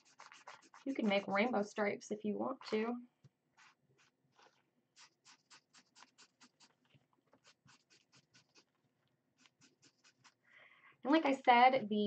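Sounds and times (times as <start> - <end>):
marker strokes on paper: 0.0 - 1.6, 3.5 - 10.4.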